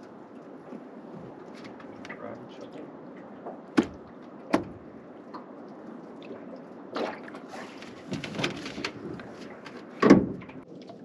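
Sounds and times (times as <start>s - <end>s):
sharp knocks on aluminium hull: 3.8s - 4.8s
fishing gear clattering and scraping: 7.6s - 10.0s.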